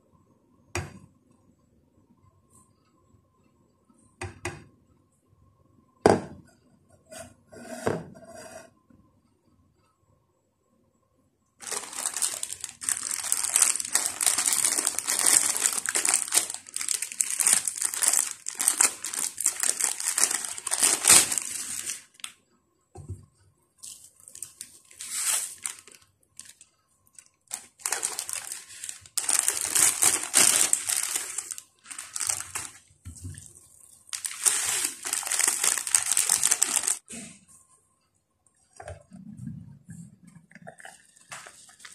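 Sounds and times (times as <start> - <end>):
plastic packets crinkling: 11.6 - 22.3, 23.8 - 37.1.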